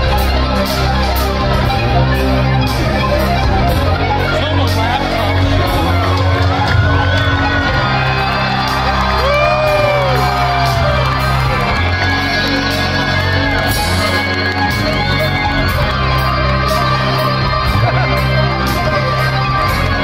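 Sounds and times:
live rock music: 0:00.0 - 0:20.0
audience whooping and shouting: 0:05.4 - 0:20.0.

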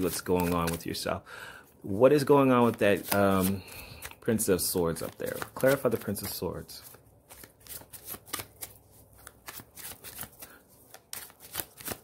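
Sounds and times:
cards being shuffled: 0:00.0 - 0:01.0, 0:02.5 - 0:12.0.

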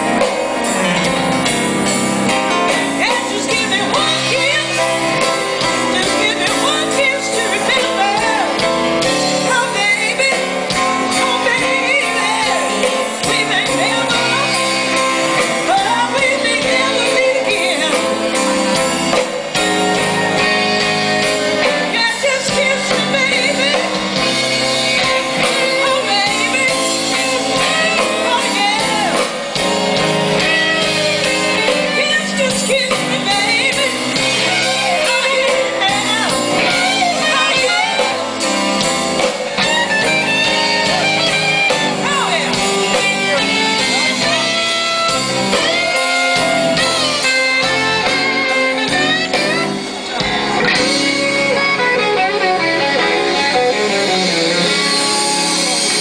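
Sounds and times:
live blues band playing: 0:00.0 - 0:56.0
person singing: 0:02.5 - 0:18.8, 0:19.6 - 0:38.5.

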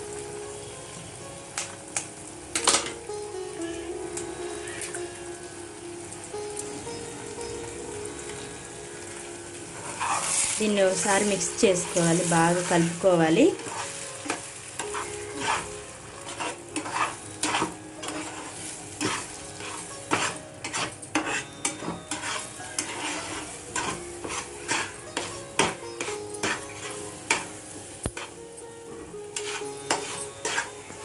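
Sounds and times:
eggs sizzling in a frying pan: 0:00.0 - 0:31.0
steel spatula scraping a pan: 0:09.7 - 0:28.4, 0:29.0 - 0:31.0.

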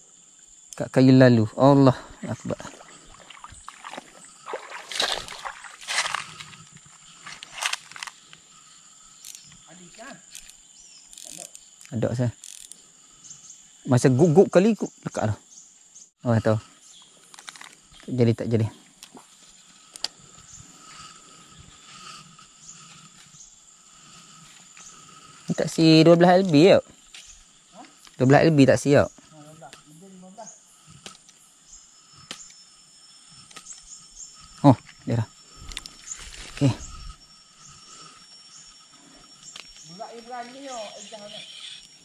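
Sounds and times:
insect chirring: 0:00.0 - 0:42.0
water splashing and sloshing: 0:02.1 - 0:07.5.

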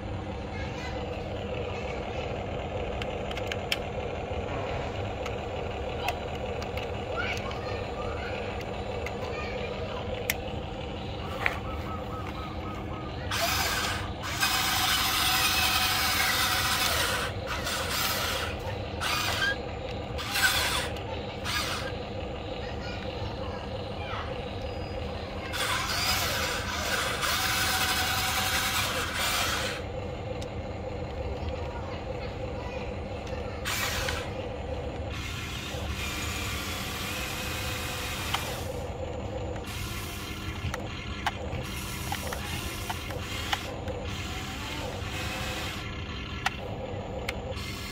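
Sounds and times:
electric gear motors whirring: 0:00.0 - 0:47.9.

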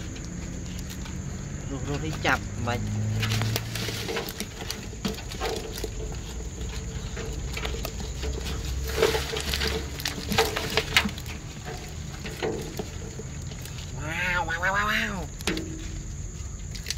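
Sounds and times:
hand sorting wet fish: 0:00.0 - 0:16.9
fish flapping and splashing: 0:02.9 - 0:14.0.

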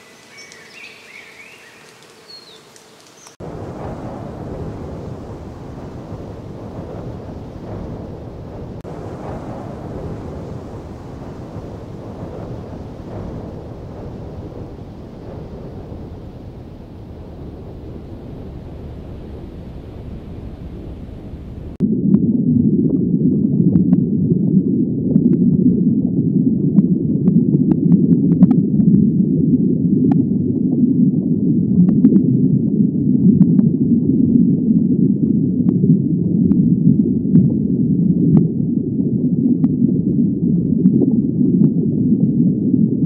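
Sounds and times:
underwater low rumble: 0:00.0 - 0:43.0
sharp underwater clicks: 0:00.1 - 0:00.8.

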